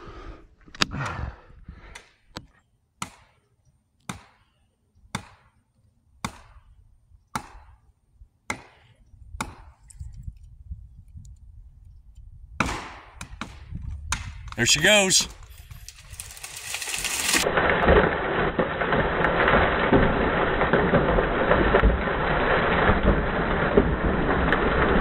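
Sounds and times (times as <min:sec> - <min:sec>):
tree giving way: 0:14.6 - 0:25.0.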